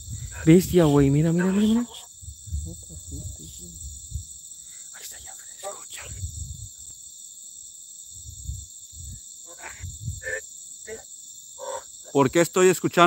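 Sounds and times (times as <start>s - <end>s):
dull low thumps: 0.0s - 1.2s, 2.1s - 4.4s, 6.0s - 6.8s, 8.2s - 10.4s
crickets trilling: 0.0s - 13.0s.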